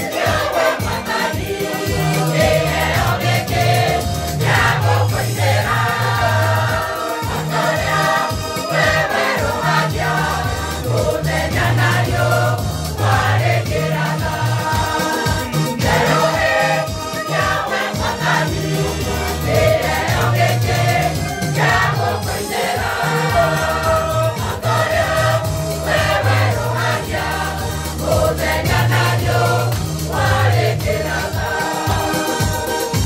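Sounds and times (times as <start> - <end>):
choir singing gospel: 0.0 - 33.0
regular beat: 0.0 - 33.0
bass line: 1.9 - 8.2, 8.8 - 14.8, 18.2 - 31.4.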